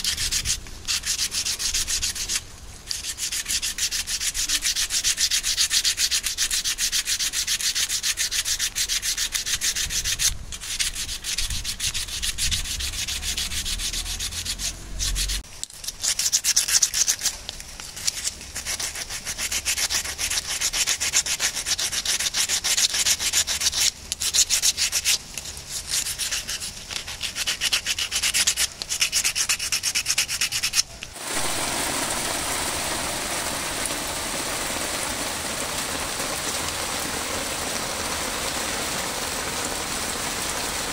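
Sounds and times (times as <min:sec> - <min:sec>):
wooden spoon rubbing on wood: 0:00.0 - 0:31.5
rain on wet concrete: 0:00.0 - 0:40.9.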